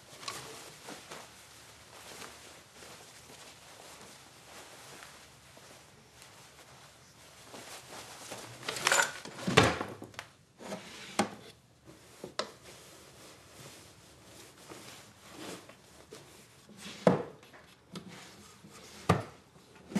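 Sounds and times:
cloth rustling: 0.0s - 9.5s, 11.5s - 16.8s.

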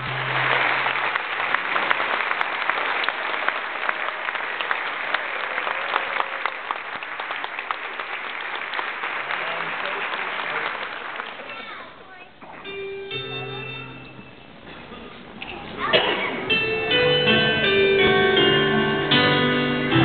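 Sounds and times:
audience applauding: 0.0s - 12.2s.

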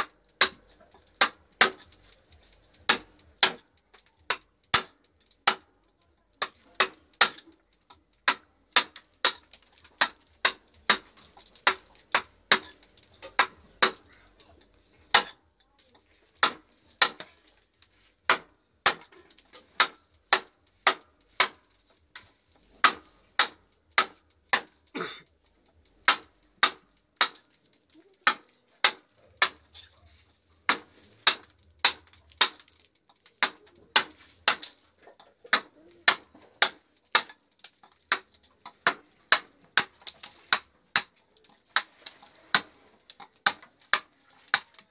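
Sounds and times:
mallet striking wooden chisel: 0.0s - 1.9s, 2.8s - 3.6s, 4.3s - 5.7s, 6.4s - 7.5s, 8.2s - 14.0s, 15.1s - 15.4s, 16.4s - 17.3s, 18.3s - 22.2s, 22.8s - 24.7s, 26.0s - 27.4s, 28.2s - 29.7s, 30.7s - 32.6s, 33.4s - 34.7s, 35.4s - 37.4s, 38.1s - 41.2s.

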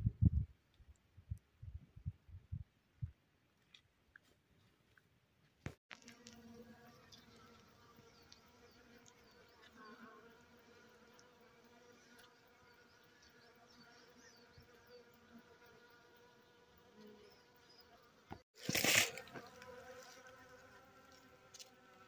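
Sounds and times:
honeybees buzzing: 5.9s - 22.0s.

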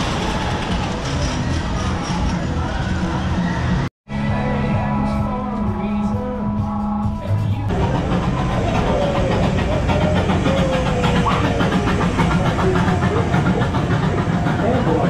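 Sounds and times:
gasoline engine idling: 7.7s - 15.0s.

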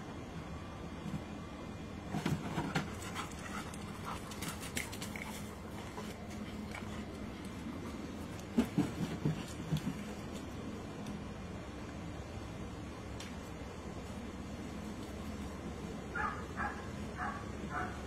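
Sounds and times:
paws thumping on hollow plastic: 2.1s - 10.7s
dog panting: 2.9s - 7.6s.

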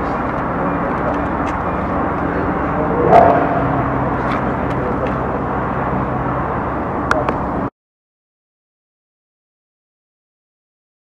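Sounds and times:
low engine-like hum: 0.0s - 7.7s.

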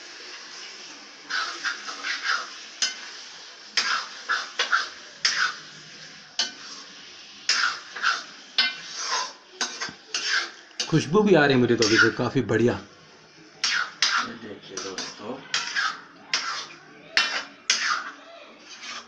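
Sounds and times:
squishing and scraping chicken: 1.3s - 2.7s, 3.8s - 10.6s, 13.6s - 19.0s.

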